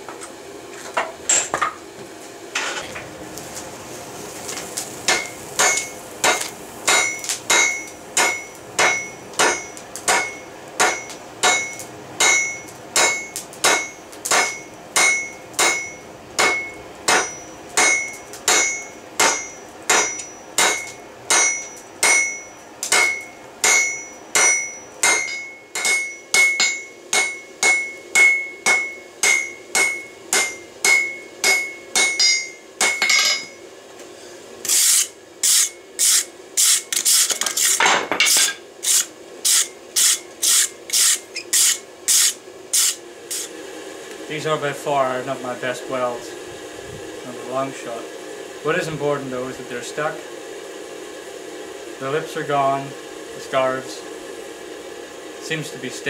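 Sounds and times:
hammer striking hot steel on anvil: 0:05.1 - 0:33.6, 0:34.7 - 0:43.5.

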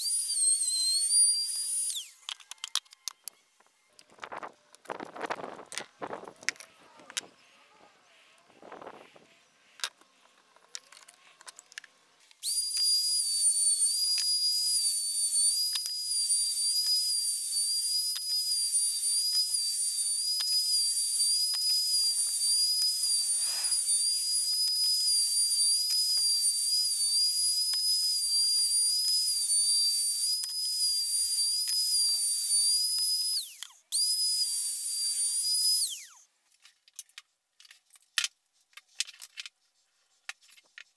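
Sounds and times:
router high-pitched whine: 0:00.0 - 0:04.6, 0:12.4 - 0:36.3.

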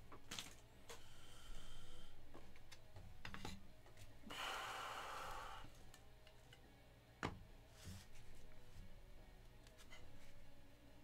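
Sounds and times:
person breathing out: 0:04.3 - 0:05.7.

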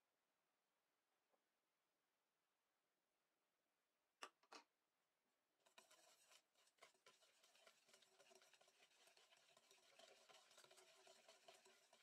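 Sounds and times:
whisk scraping steel bowl: 0:05.6 - 0:12.0.

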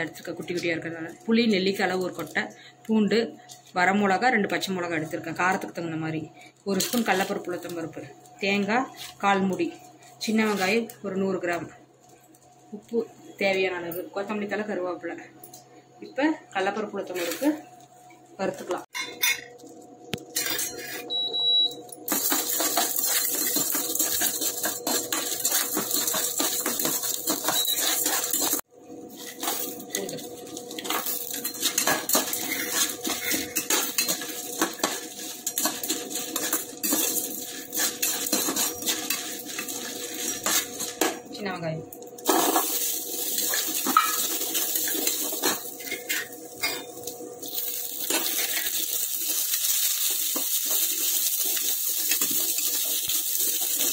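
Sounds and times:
metal spoon scraping a pan: 0:22.1 - 0:41.2, 0:42.2 - 0:46.8, 0:47.7 - 0:53.9.

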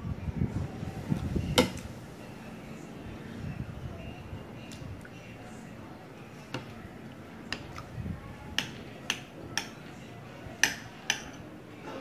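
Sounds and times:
utensil clicks and taps: 0:08.6 - 0:09.8.

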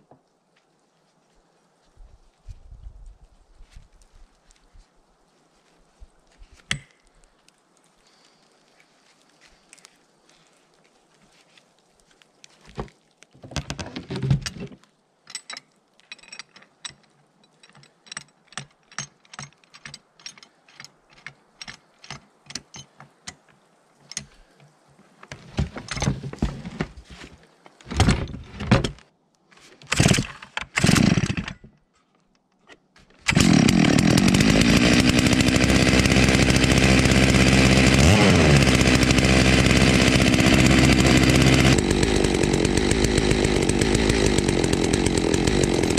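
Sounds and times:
starter cord pulls: 0:29.8 - 0:31.7, 0:32.6 - 0:45.9
chainsaw engine running: 0:29.9 - 0:31.5, 0:33.2 - 0:45.9.

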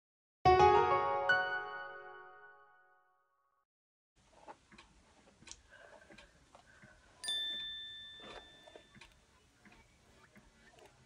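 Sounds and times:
bright chime: 0:07.2 - 0:08.9.

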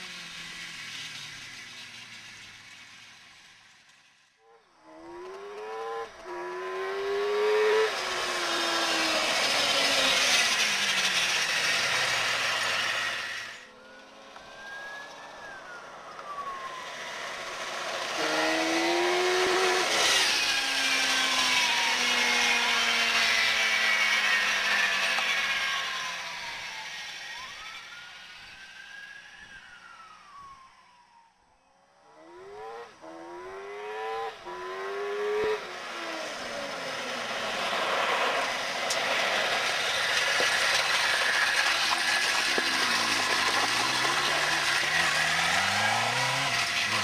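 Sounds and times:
motorcycle engine accelerating past: 0:04.4 - 0:31.2, 0:31.9 - 0:47.0
tyres throwing dirt hiss: 0:36.4 - 0:47.0.

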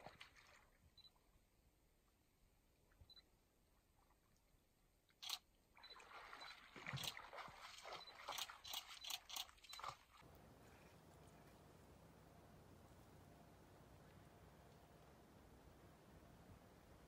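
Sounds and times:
animal splashing through water: 0:00.0 - 0:00.8, 0:05.8 - 0:10.3.

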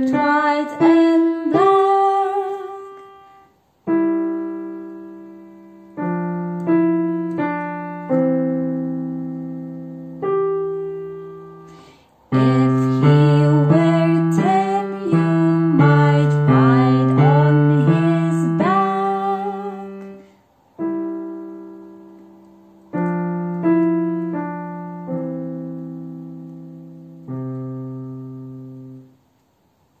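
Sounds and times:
woman singing wordlessly: 0:00.0 - 0:03.4, 0:12.3 - 0:20.2
digital piano playing: 0:00.0 - 0:29.2.

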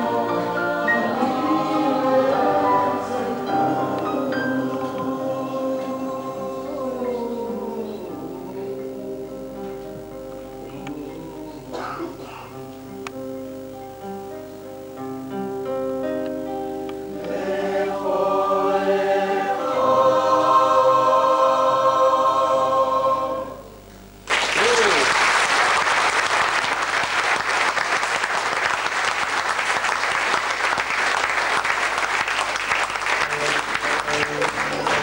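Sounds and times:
choir singing: 0:00.0 - 0:09.5, 0:17.1 - 0:23.8
audience applause: 0:24.2 - 0:35.0.

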